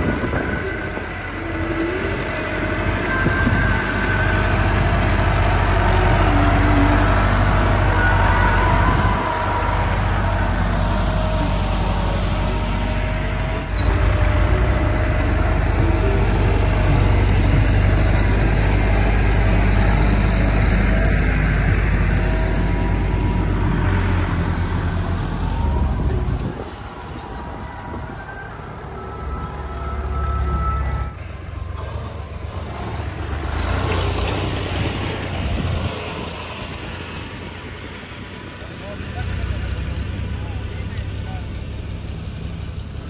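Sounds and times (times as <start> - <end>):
tractor diesel engine running: 0.0 - 43.0.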